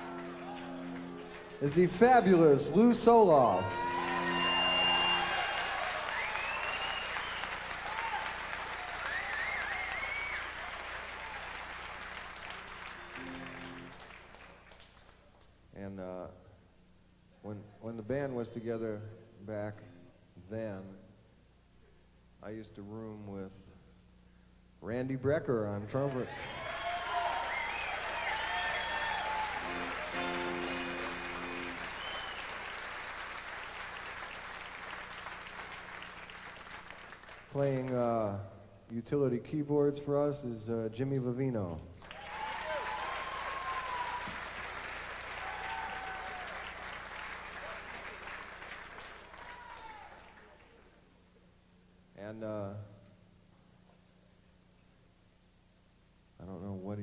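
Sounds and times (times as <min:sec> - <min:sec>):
band held chord: 0:00.0 - 0:05.3, 0:12.8 - 0:14.1, 0:29.3 - 0:32.0
audience applauding: 0:00.0 - 0:15.3, 0:26.1 - 0:38.0, 0:42.0 - 0:51.0
wavering whistle: 0:03.5 - 0:07.6, 0:26.4 - 0:32.6.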